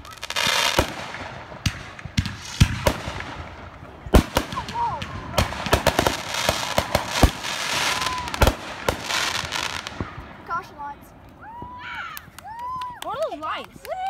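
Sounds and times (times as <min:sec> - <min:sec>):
fireworks bangs: 0:00.0 - 0:11.8
fireworks hissing and crackling: 0:00.0 - 0:11.8.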